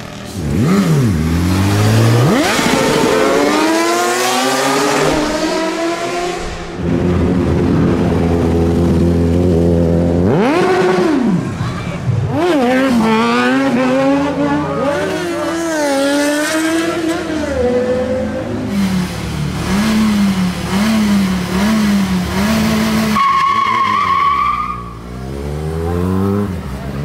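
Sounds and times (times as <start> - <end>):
sport bike engine blipped: 0.0 - 5.0, 18.7 - 24.0
motorcycle engine revving: 0.0 - 11.6, 12.2 - 23.2, 25.0 - 27.0.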